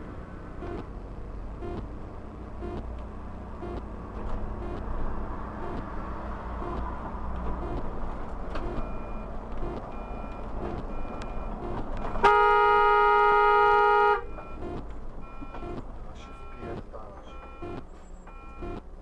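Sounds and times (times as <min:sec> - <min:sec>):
car engine and road noise: 0:00.0 - 0:19.0
car horn blast: 0:11.6 - 0:14.8.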